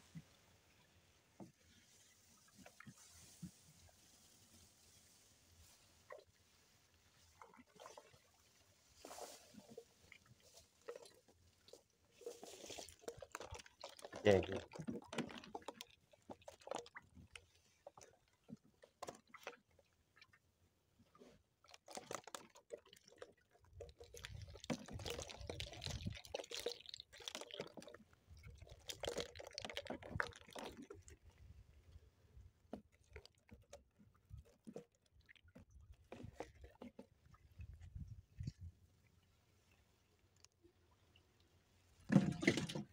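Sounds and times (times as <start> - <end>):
water dripping and splashing: 7.2 - 20.4, 21.6 - 31.6, 32.6 - 38.7
fish trap netting clattering: 42.1 - 42.9.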